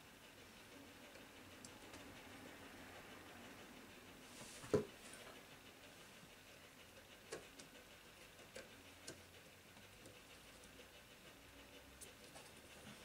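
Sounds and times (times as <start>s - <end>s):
faint clicks and taps: 7.0s - 7.8s, 8.4s - 10.8s.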